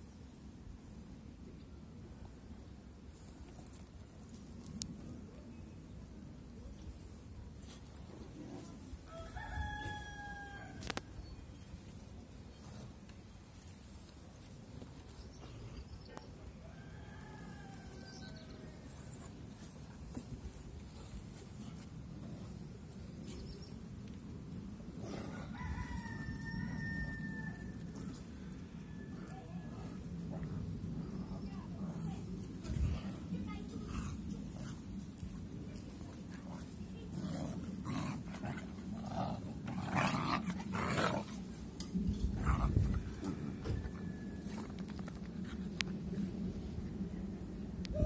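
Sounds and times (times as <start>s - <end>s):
rooster crowing: 9.1s - 10.9s, 16.6s - 18.4s, 25.3s - 27.9s
steady low rumble: 17.4s - 48.0s
puppies growling: 36.3s - 43.7s.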